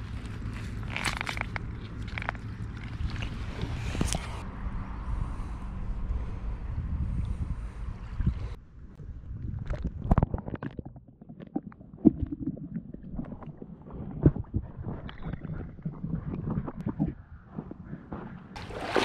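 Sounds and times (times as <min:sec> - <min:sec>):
low rumble: 0:00.0 - 0:18.6
hand splashing in water: 0:18.6 - 0:19.0.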